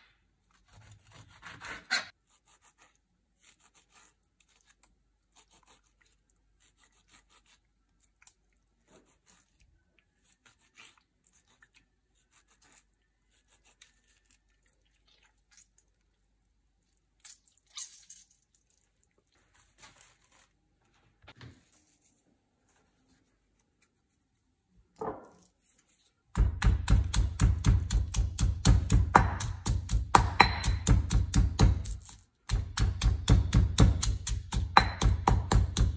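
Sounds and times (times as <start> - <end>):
food handling scrapes and rustles: 0.5 - 16.0, 17.6 - 24.6, 25.2 - 26.3.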